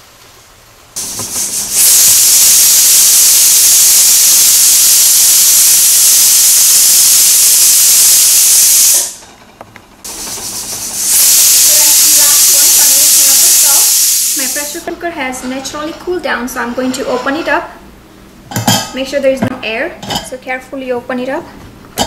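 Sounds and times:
pressure cooker whistle hissing: 0:01.0 - 0:09.2, 0:10.1 - 0:14.9.

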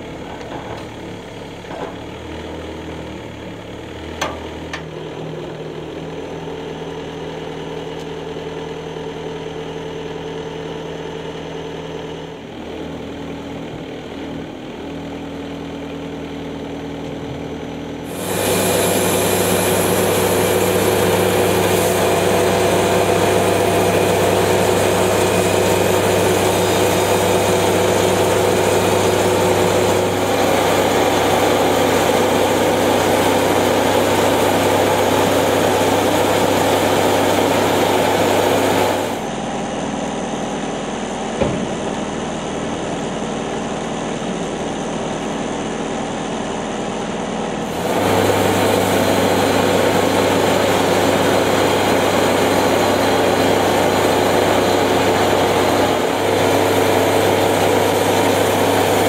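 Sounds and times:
sawmill engine humming: 0:00.0 - 0:59.0
band blade cutting log: 0:18.1 - 0:23.7.

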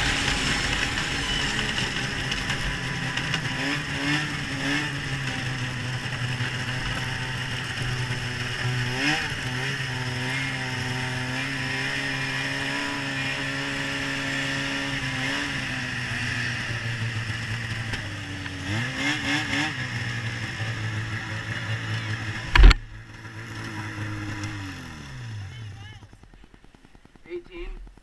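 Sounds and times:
snowmobile engine revving: 0:00.0 - 0:27.8
loud thump: 0:22.5 - 0:23.0.

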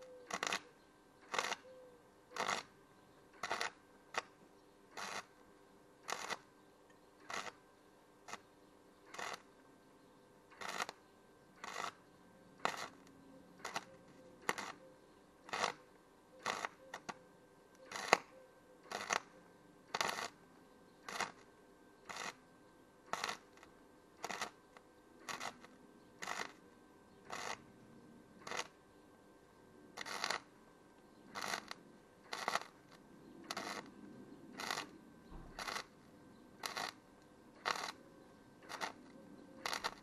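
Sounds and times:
welding arc crackling: 0:00.3 - 0:00.6, 0:01.2 - 0:01.6, 0:02.4 - 0:02.7, 0:03.4 - 0:04.3, 0:05.0 - 0:05.3, 0:06.0 - 0:06.5, 0:07.2 - 0:07.6, 0:09.1 - 0:09.5, 0:10.6 - 0:11.0, 0:11.6 - 0:12.0, 0:12.6 - 0:14.8, 0:15.5 - 0:15.8, 0:16.4 - 0:17.2, 0:17.8 - 0:18.3, 0:18.9 - 0:19.3, 0:19.9 - 0:20.4, 0:21.0 - 0:21.4, 0:22.1 - 0:22.4, 0:23.1 - 0:23.6, 0:24.2 - 0:24.6, 0:25.2 - 0:26.6, 0:27.3 - 0:27.6, 0:28.4 - 0:28.7, 0:30.0 - 0:30.5, 0:31.3 - 0:33.9, 0:34.5 - 0:37.0, 0:37.6 - 0:38.0, 0:38.6 - 0:40.0.

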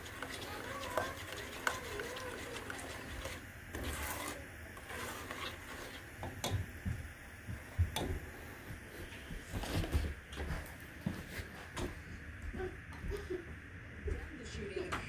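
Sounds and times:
spatula scraping saucepan: 0:00.0 - 0:06.5.

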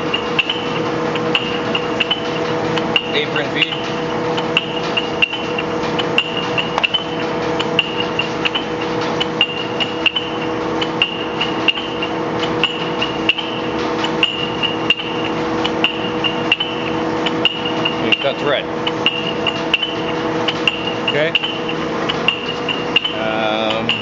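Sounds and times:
lathe gear hum: 0:00.0 - 0:24.0.

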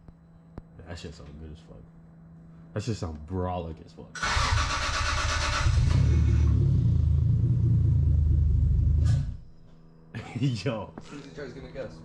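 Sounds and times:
car engine cranking and running: 0:04.2 - 0:09.4.

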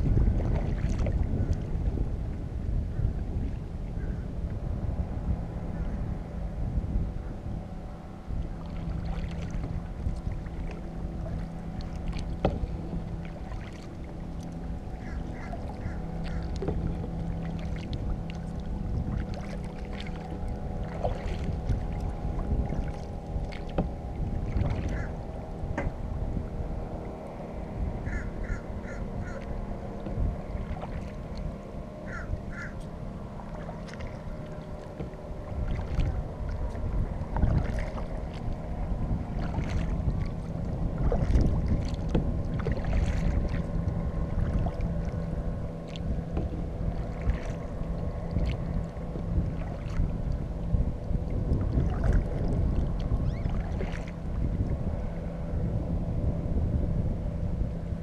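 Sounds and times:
paddle strokes splashing water: 0:00.0 - 0:01.7, 0:08.3 - 0:26.0, 0:26.6 - 0:55.8
wind rumbling on microphone: 0:00.0 - 0:58.0
bird cawing: 0:14.9 - 0:16.6, 0:24.8 - 0:25.2, 0:28.0 - 0:29.5, 0:32.0 - 0:32.9.

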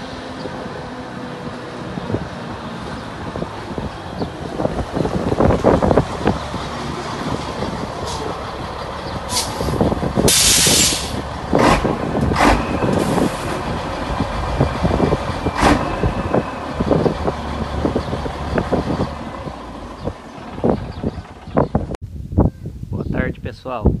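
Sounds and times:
diesel truck engine running: 0:00.0 - 0:22.0
air brakes hissing: 0:09.3 - 0:11.2, 0:12.4 - 0:13.6.

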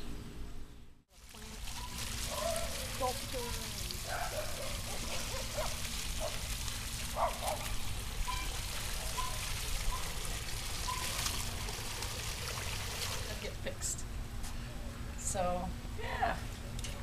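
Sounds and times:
water trickling over stones: 0:01.1 - 0:13.6.

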